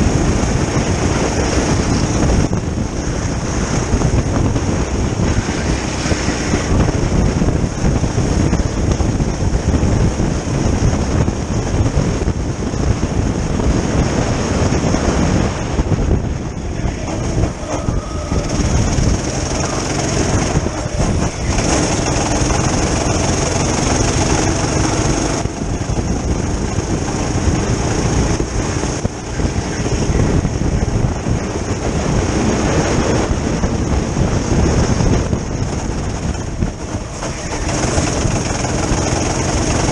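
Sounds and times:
go-kart engine running: 0.0s - 39.9s
wind rush: 0.0s - 39.9s
tyre rumble: 15.9s - 39.9s.

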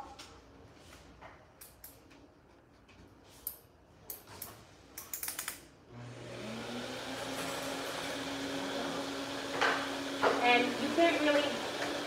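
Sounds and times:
dog dryer humming and blowing: 5.9s - 12.0s.

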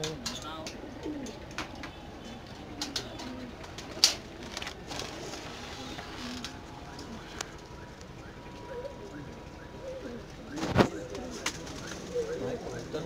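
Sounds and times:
pigeons cooing: 0.0s - 13.0s.

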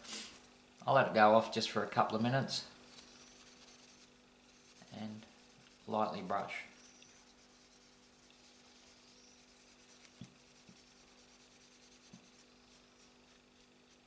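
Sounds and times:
low steady hum: 0.0s - 14.0s
cloth rubbing on plastic: 3.0s - 6.3s, 7.1s - 14.0s.

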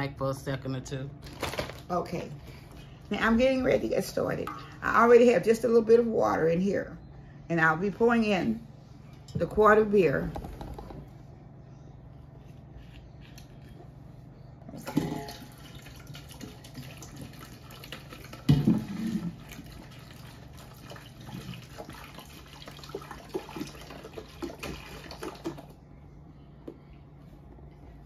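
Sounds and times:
beer pouring into a pot: 14.9s - 25.8s.

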